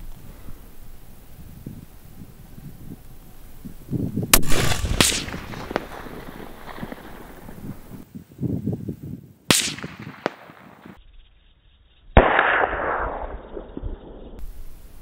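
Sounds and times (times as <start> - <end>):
dull gunshot with rolling tail: 4.3 - 8.0, 9.5 - 11.0, 12.2 - 14.2
rifle shot sharp crack: 4.3 - 8.0, 9.5 - 11.0, 12.2 - 13.6.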